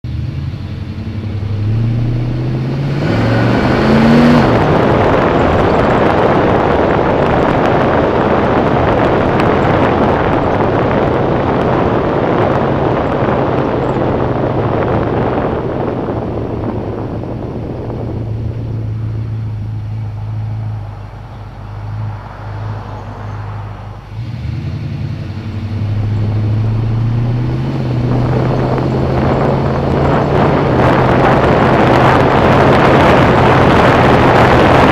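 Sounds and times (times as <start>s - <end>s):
car engine and exhaust: 0.0s - 34.9s
wind on microphone: 0.4s - 34.9s.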